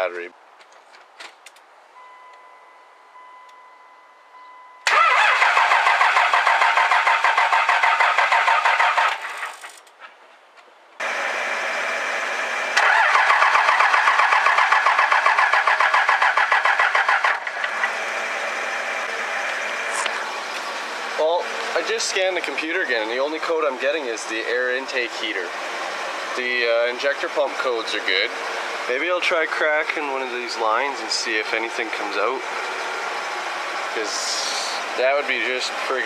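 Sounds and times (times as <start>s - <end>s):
steady beep: 2.0s - 4.8s
starter cranking diesel engine: 4.8s - 9.6s, 11.0s - 36.0s.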